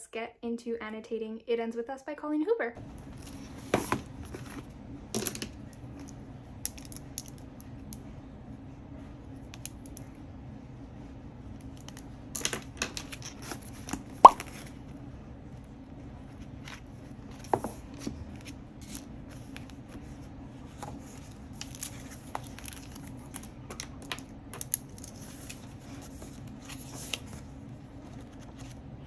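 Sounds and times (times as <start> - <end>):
pages being handled: 3.0 - 4.7, 16.3 - 28.8.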